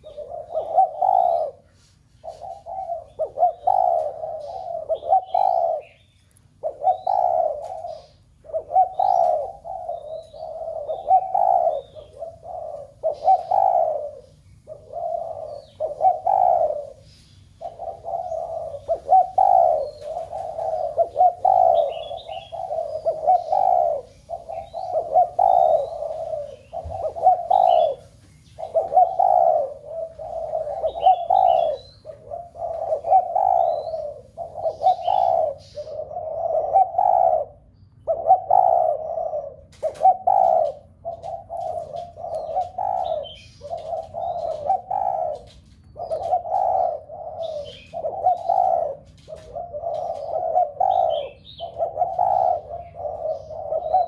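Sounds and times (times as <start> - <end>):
doves cooing: 0.0 - 54.0.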